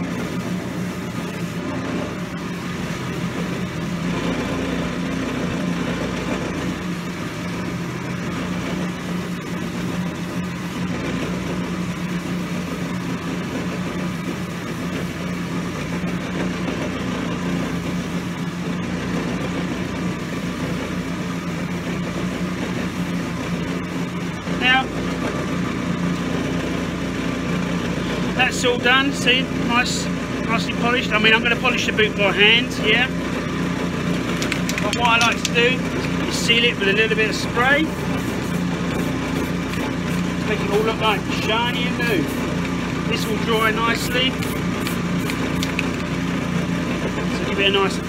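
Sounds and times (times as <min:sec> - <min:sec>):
finishing machine humming: 0:00.0 - 0:48.0
boot sole against polishing wheels: 0:34.1 - 0:46.1.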